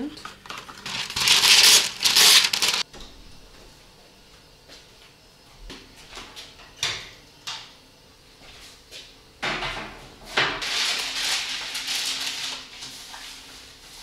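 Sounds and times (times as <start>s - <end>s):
parchment paper rustling: 0.5s - 2.8s, 10.6s - 14.0s.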